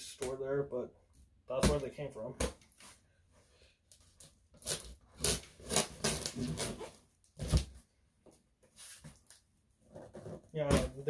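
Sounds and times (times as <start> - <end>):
packing tape tearing: 4.2 - 7.6.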